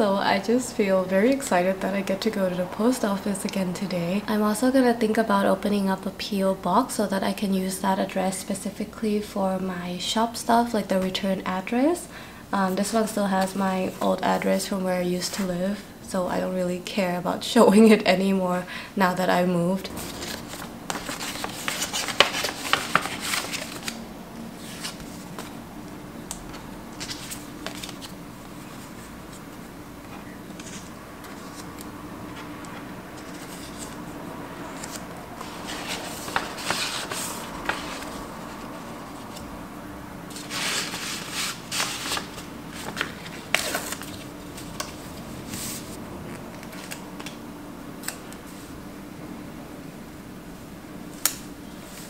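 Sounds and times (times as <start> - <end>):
steady low hum: 0.0 - 52.0
paper rustling and crinkling: 19.9 - 24.0, 24.6 - 25.6, 26.5 - 29.5, 30.5 - 39.5, 40.3 - 45.9, 46.5 - 47.4.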